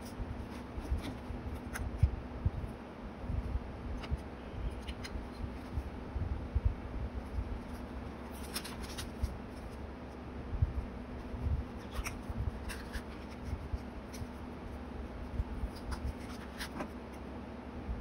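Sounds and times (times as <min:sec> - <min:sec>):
paper rustling: 0:00.0 - 0:02.1, 0:07.6 - 0:09.8, 0:11.2 - 0:14.5, 0:15.3 - 0:17.2.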